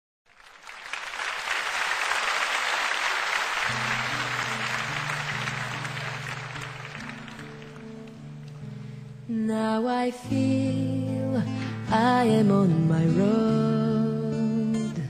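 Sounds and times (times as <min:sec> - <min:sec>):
audience applause: 0:00.3 - 0:08.6
slow song with low notes: 0:03.8 - 0:15.0.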